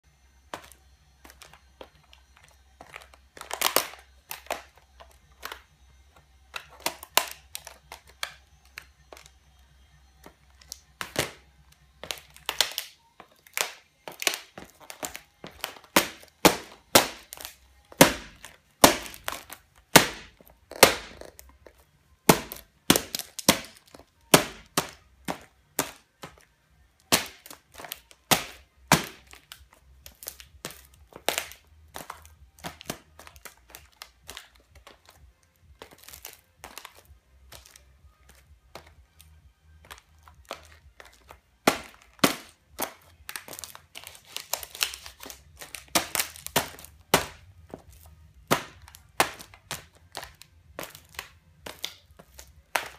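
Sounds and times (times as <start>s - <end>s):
high heels cracking plastic: 0.5s - 9.4s, 10.2s - 39.2s, 39.8s - 52.9s.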